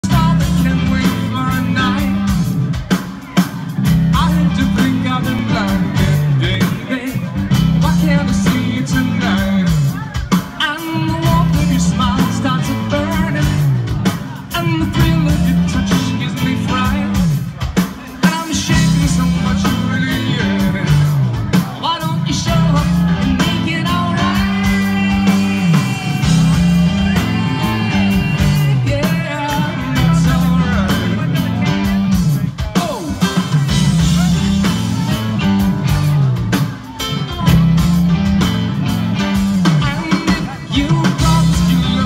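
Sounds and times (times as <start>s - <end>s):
drums: 0.0s - 42.0s
electric guitar: 0.0s - 42.0s
man singing: 0.0s - 42.0s
bass line sliding down: 18.7s - 32.5s, 33.1s - 42.0s.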